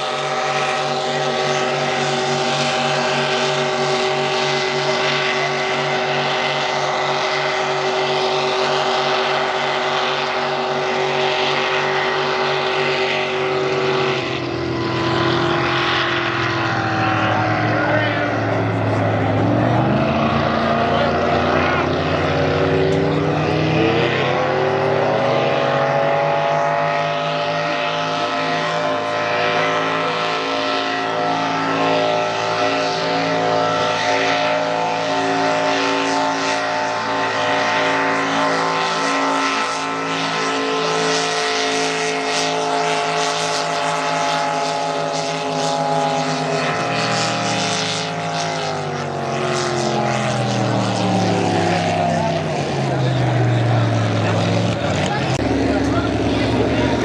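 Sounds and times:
boat engines droning: 0.0 - 57.0.

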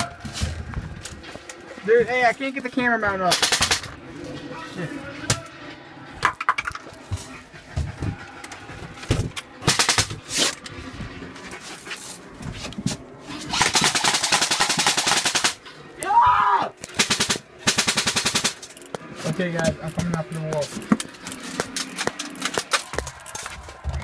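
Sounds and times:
airsoft gun full-auto bursts: 3.3 - 3.9, 13.5 - 15.6, 17.0 - 18.6.

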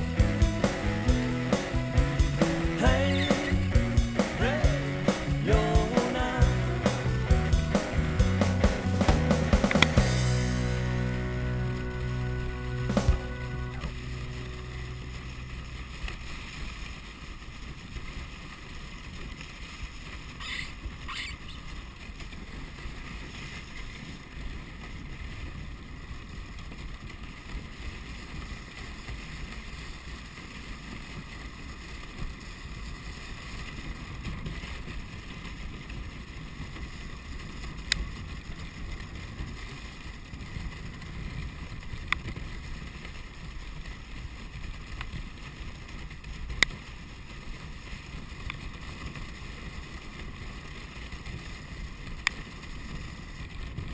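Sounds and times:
sled knocks: 0.0 - 13.8
sled runners gliding over snow: 0.0 - 53.9.

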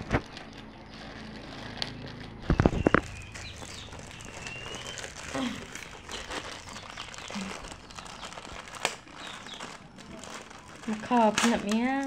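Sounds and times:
light crinkling: 0.0 - 12.0.

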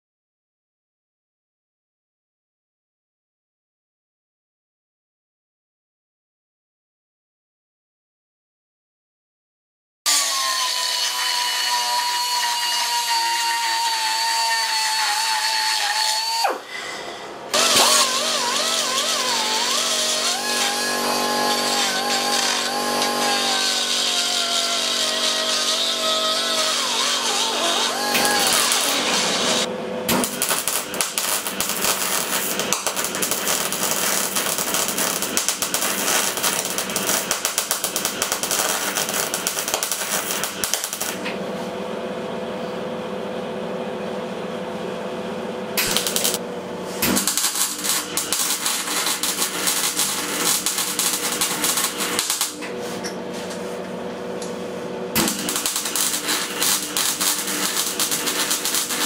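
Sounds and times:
arc welding crackle: 17.6 - 41.3, 45.8 - 52.6, 55.2 - 59.0.

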